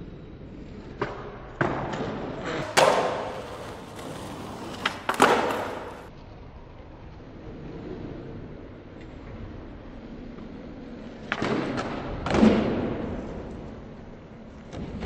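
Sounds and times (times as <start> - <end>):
skateboard wheels rolling: 0.0 - 15.0
skateboard landing: 1.0 - 6.1, 11.2 - 13.6
skateboard pop: 1.0 - 6.1
skateboard scraping on ledge: 2.4 - 6.1.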